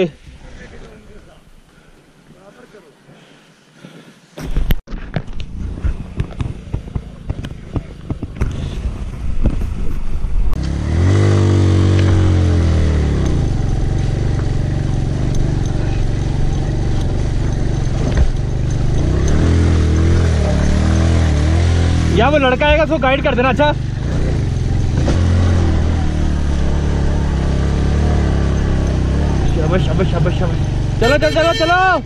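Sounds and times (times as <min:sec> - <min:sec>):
motorcycle engine revving: 0:05.3 - 0:09.8, 0:10.5 - 0:32.0
stones clattering under tyres: 0:13.2 - 0:21.2.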